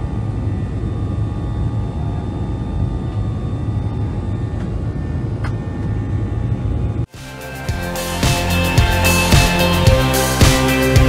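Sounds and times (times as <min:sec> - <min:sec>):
faint steady engine tones: 0:00.0 - 0:07.1
jet engine rumble and airflow: 0:00.0 - 0:07.1.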